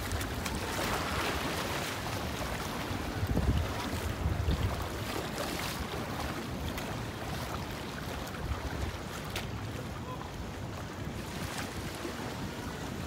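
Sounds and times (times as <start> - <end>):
wind on microphone: 0.0 - 7.2
ocean surf on sandy beach: 0.0 - 13.0.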